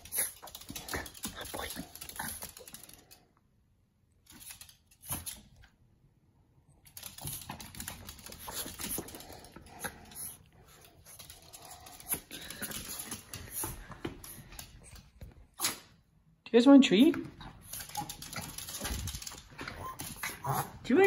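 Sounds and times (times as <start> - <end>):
dog claws clicking on wooden floor: 0.0 - 3.2, 4.3 - 5.5, 6.8 - 15.4, 17.4 - 20.6.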